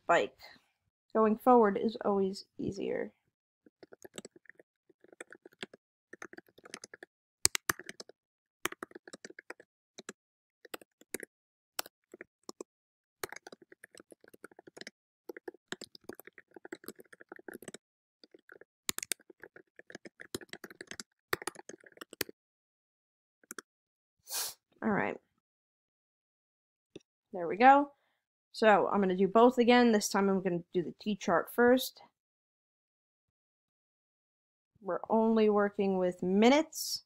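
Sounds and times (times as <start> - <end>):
keyboard typing clicks: 3.8 - 22.3.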